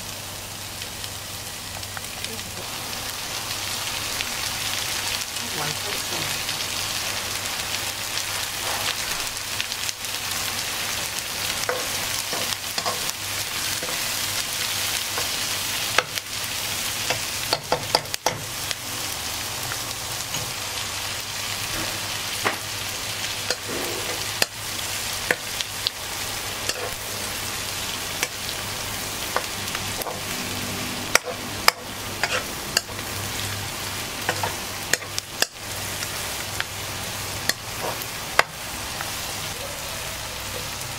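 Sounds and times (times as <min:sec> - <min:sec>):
shallots sizzling in a wok: 0:00.0 - 0:40.9
metal spatula scraping a wok: 0:23.5 - 0:24.5, 0:31.2 - 0:33.0.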